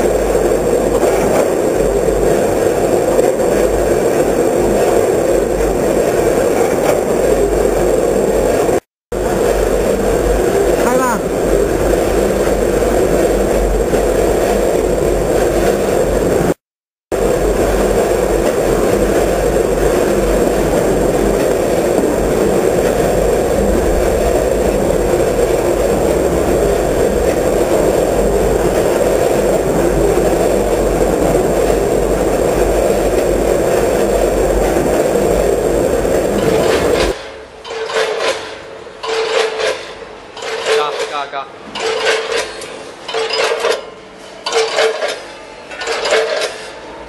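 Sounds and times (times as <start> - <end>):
packing machinery running: 0.0 - 47.0
rattling clatter of hopper gates: 17.2 - 46.8.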